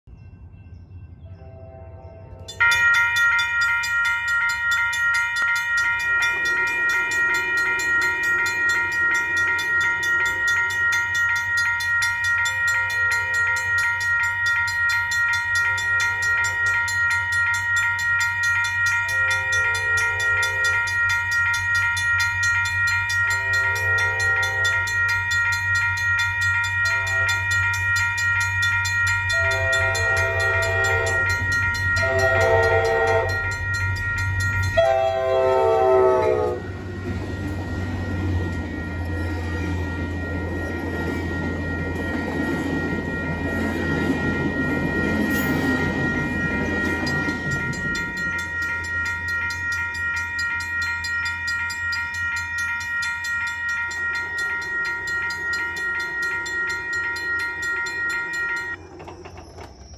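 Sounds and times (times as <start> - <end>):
crossing warning bell dinging: 0.1 - 59.9
train horn blasts: 1.2 - 2.7, 23.4 - 25.0, 29.3 - 33.5, 34.7 - 37.0.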